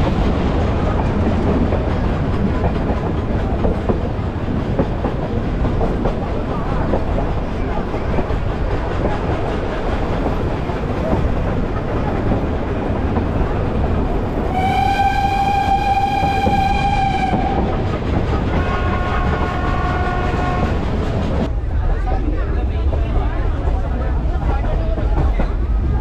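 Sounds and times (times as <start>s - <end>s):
train rumble and clickety-clack: 0.0s - 26.0s
steam locomotive whistle: 14.4s - 17.8s, 18.5s - 20.8s.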